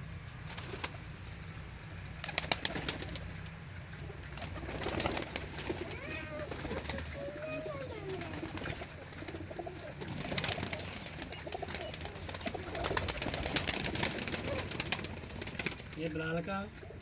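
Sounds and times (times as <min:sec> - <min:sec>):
wing flutters and rustles: 0:00.0 - 0:17.0
pigeons cooing: 0:02.2 - 0:17.0.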